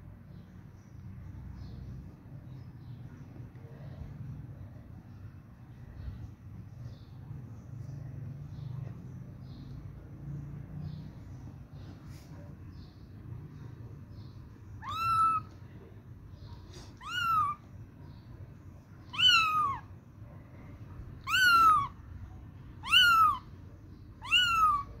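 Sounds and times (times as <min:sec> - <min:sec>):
kitten meowing: 0:14.8 - 0:15.6, 0:16.8 - 0:17.7, 0:19.1 - 0:19.9, 0:21.2 - 0:22.0, 0:22.8 - 0:23.5, 0:24.2 - 0:25.0.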